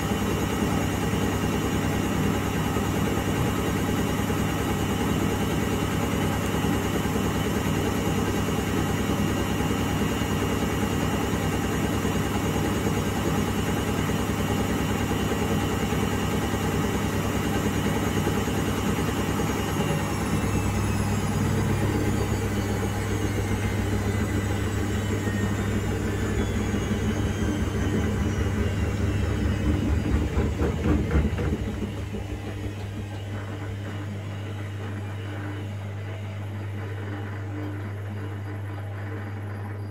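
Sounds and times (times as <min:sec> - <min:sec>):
washing machine drum rumbling: 0:00.0 - 0:35.7
washing machine motor whine: 0:00.0 - 0:39.9
steady low hum: 0:11.3 - 0:39.9.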